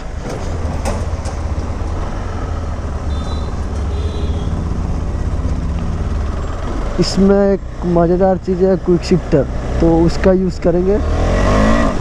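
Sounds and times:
motorcycle engine running: 0:02.7 - 0:07.0.

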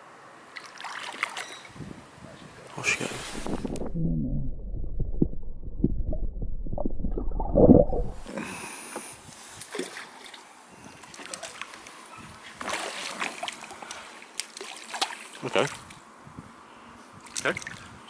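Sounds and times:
splashing at water surface: 0:00.6 - 0:01.5, 0:12.6 - 0:16.0
muffled underwater water sloshing: 0:03.0 - 0:08.3.

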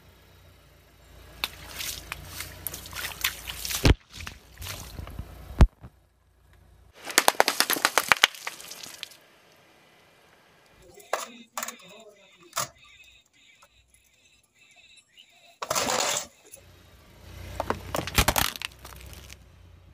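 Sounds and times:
water splashing: 0:01.4 - 0:05.0, 0:07.1 - 0:09.2
water-filled gloves squelching: 0:01.4 - 0:05.0, 0:07.0 - 0:09.2
plastic packets crunching: 0:07.0 - 0:09.2, 0:17.9 - 0:19.4
sharp pops: 0:07.0 - 0:09.2.

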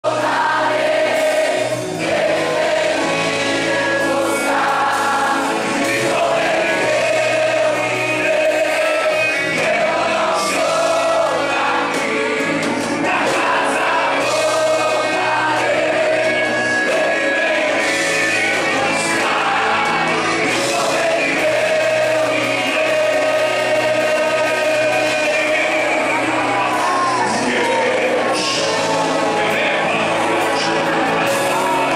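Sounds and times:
congregation singing: 0:00.0 - 0:31.9
gospel music: 0:00.0 - 0:31.9
man singing into microphone: 0:03.8 - 0:31.9.

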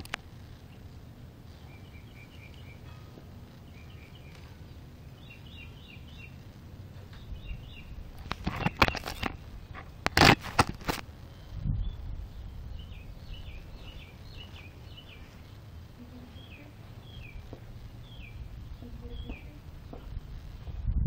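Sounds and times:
outdoor background noise: 0:00.0 - 0:21.0
faint bird chirps: 0:01.5 - 0:06.4, 0:11.2 - 0:20.1
hand handling phone microphone: 0:08.2 - 0:11.0.

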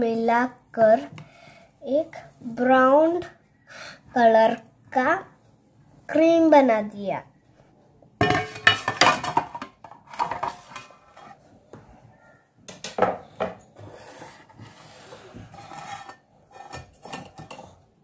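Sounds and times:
steel kitchenware clattering: 0:08.2 - 0:11.3, 0:15.6 - 0:17.8.

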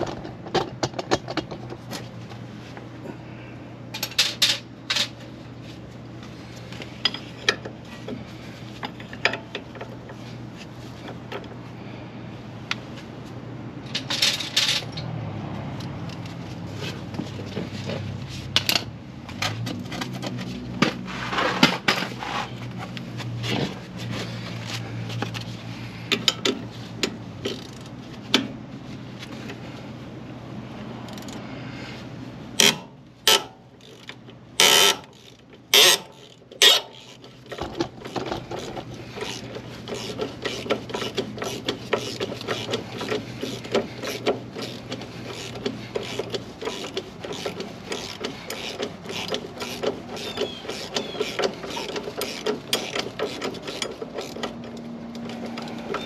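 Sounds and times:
ratchet wrench clicking: 0:26.1 - 0:27.9, 0:31.1 - 0:31.4, 0:32.6 - 0:56.0
impact wrench bursts: 0:34.6 - 0:54.5.

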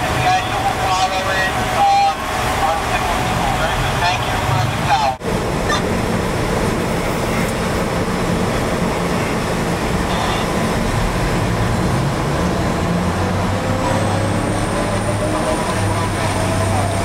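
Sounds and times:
rail vehicle engine running: 0:00.0 - 0:17.0.

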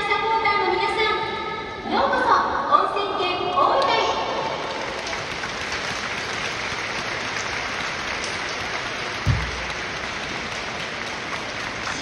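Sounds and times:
stadium crowd applauding: 0:04.4 - 0:12.0
low thump: 0:09.3 - 0:09.8.

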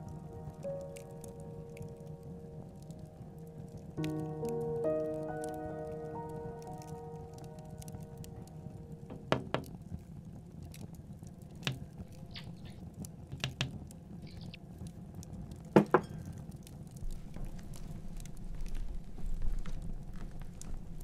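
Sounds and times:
steady low background noise: 0:00.0 - 0:21.0
knocking on a window: 0:09.1 - 0:09.7.

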